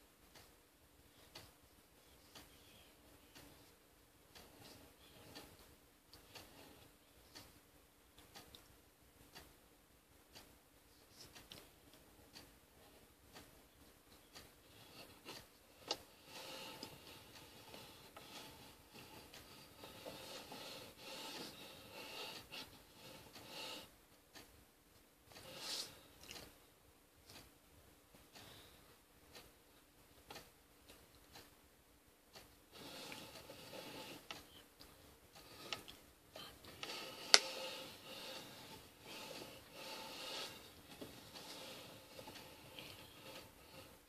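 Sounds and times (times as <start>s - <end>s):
small clicks from hands: 10.3s - 12.5s, 13.3s - 26.6s.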